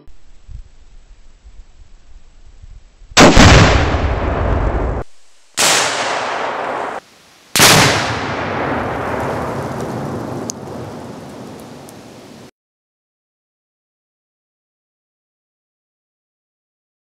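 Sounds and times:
explosion rumble: 0:03.2 - 0:05.0, 0:07.6 - 0:11.8
target explosion blasts: 0:03.2 - 0:05.0, 0:07.6 - 0:11.6.

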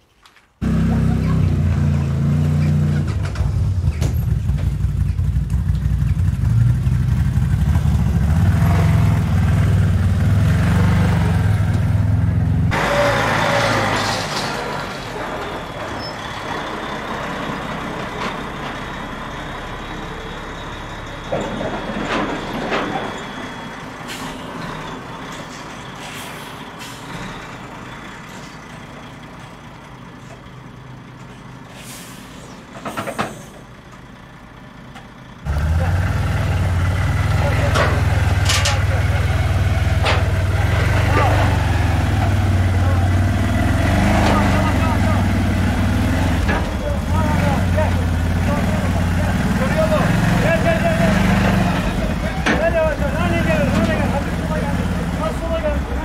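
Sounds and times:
utility vehicle engine running: 0:00.6 - 0:14.2, 0:32.8 - 0:56.0
truck diesel engine: 0:00.6 - 0:56.0
air brakes hissing and squealing: 0:12.7 - 0:28.8, 0:31.3 - 0:33.8.

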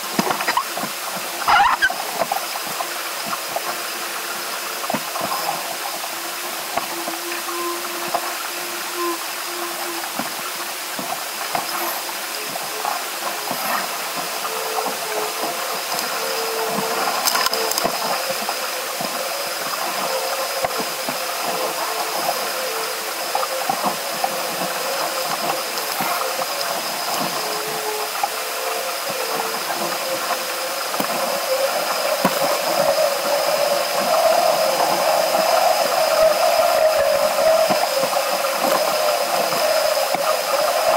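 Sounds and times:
water rushing past boat: 0:00.0 - 0:40.9
wind hiss on microphone: 0:00.0 - 0:40.9.

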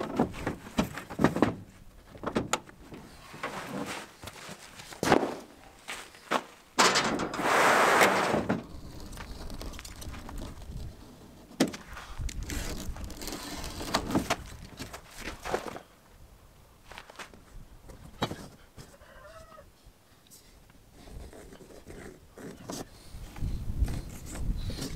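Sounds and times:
rubber mat scraping across truck bed: 0:03.3 - 0:04.2, 0:07.3 - 0:11.4, 0:12.5 - 0:14.4.

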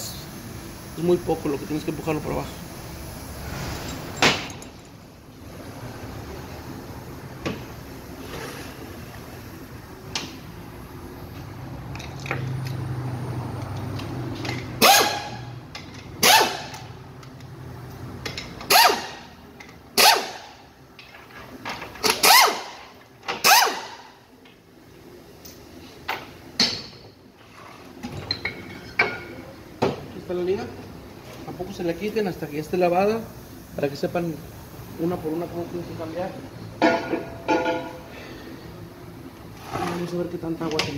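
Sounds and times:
pneumatic wrench bursts: 0:14.6 - 0:15.5, 0:16.1 - 0:16.9, 0:18.6 - 0:19.3, 0:20.0 - 0:20.6, 0:22.0 - 0:24.2.

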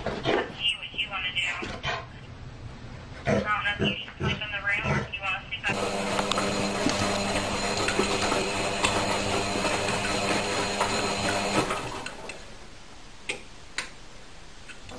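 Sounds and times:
small machine motor humming: 0:05.7 - 0:12.3.

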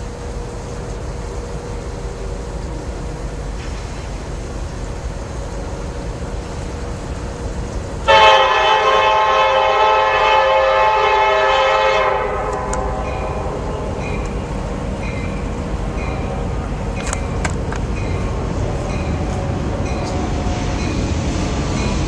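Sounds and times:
train low rumble: 0:00.0 - 0:22.0
locomotive air horn blast: 0:08.0 - 0:14.0.

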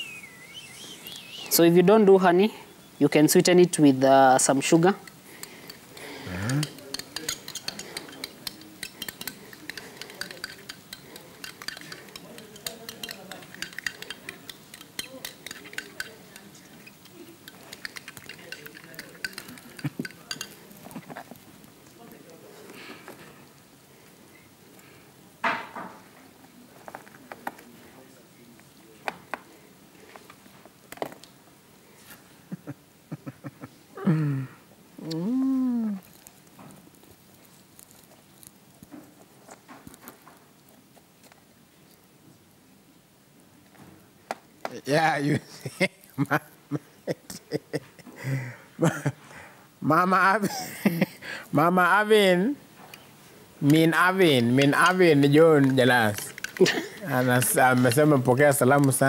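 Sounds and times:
utensil stirring in glass bowl: 0:04.5 - 0:21.5, 0:53.7 - 0:59.0
person humming: 0:06.2 - 0:06.8, 0:34.0 - 0:36.1.

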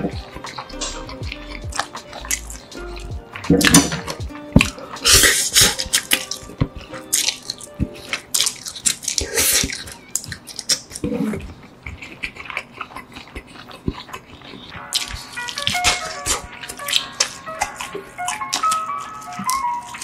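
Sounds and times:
slurping noodles: 0:00.0 - 0:09.8
mouth smacking clicks: 0:00.0 - 0:20.0
wet chewing: 0:00.0 - 0:20.0.

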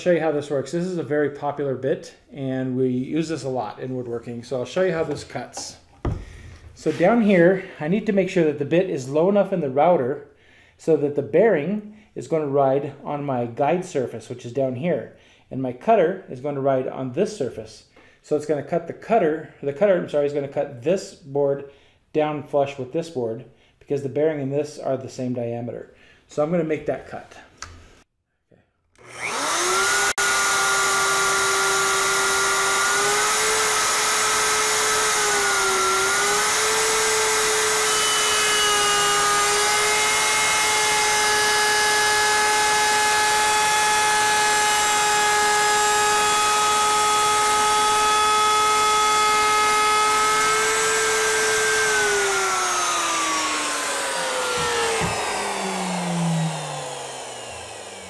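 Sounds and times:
router whining: 0:29.0 - 0:58.0.

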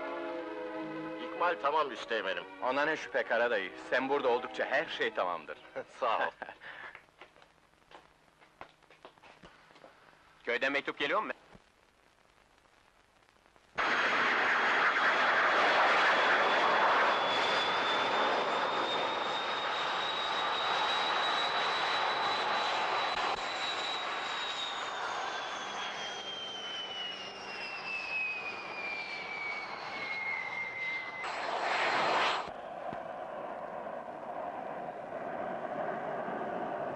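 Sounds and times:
jet engine turbine whine: 0:13.8 - 0:36.9
short rush of noise: 0:31.2 - 0:32.6.

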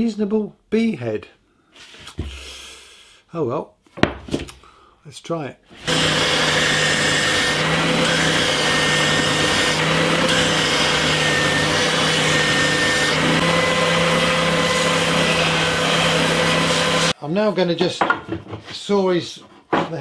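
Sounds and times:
belt sander sanding wood: 0:05.8 - 0:17.2.

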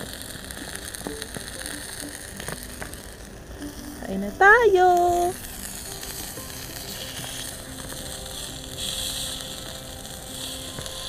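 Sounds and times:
meat sizzling in oil: 0:00.0 - 0:11.0.

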